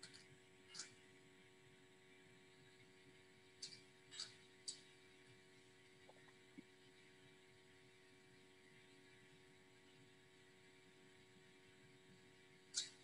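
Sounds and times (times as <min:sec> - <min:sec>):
electrical hum: 0:00.0 - 0:13.0
faint computer clicks: 0:12.7 - 0:13.0.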